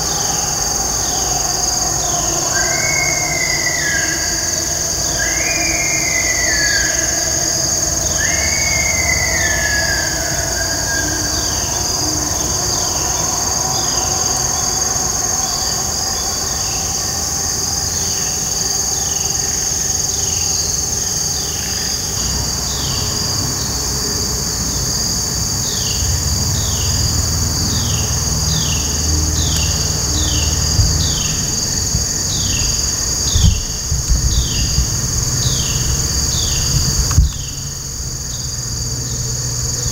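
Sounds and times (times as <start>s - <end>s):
insect chorus: 0.0s - 39.9s
falling whistled calls: 0.6s - 11.6s, 27.9s - 37.7s
low rumble: 26.2s - 38.8s
thump: 33.3s - 35.0s, 36.7s - 37.6s.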